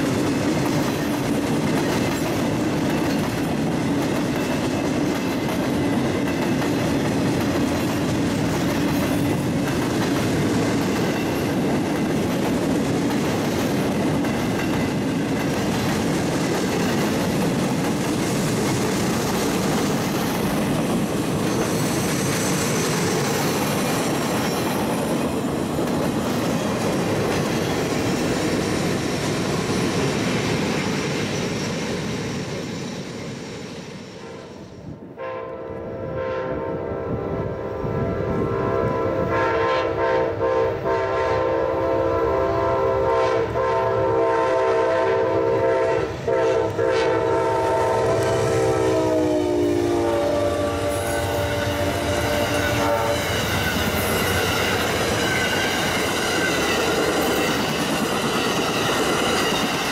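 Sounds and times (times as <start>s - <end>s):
train wheels clattering over rail joints: 0.0s - 33.2s, 51.9s - 59.9s
locomotive air horn chord: 35.2s - 53.4s.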